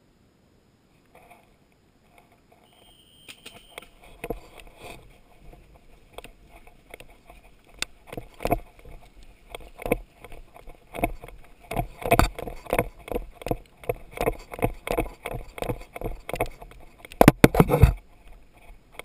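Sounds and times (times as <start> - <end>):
running footsteps through grass: 2.8 - 18.9
irregular thuds: 3.4 - 18.4
gear knocking and swishing: 3.4 - 19.0.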